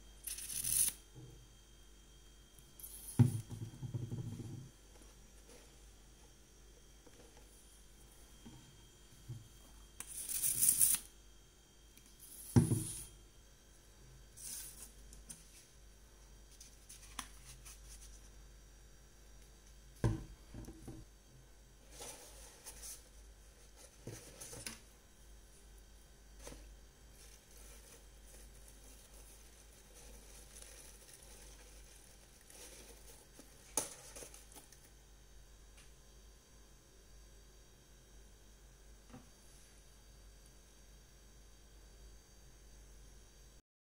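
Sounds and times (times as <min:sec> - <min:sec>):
light thump on table: 0:12.6 - 0:13.0.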